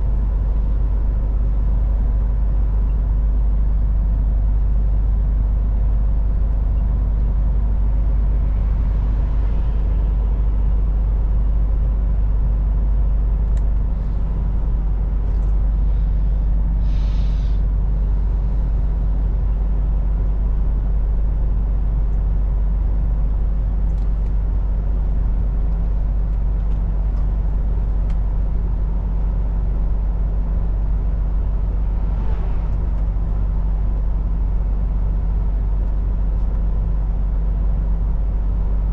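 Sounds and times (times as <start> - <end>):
low road rumble: 0.0 - 38.9
truck diesel engine running: 0.0 - 38.9
short air hiss: 16.8 - 17.6.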